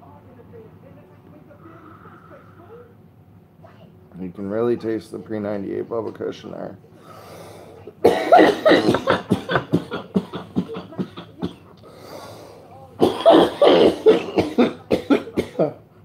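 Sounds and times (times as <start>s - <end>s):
man coughing hard: 8.0s - 11.6s, 13.0s - 15.8s.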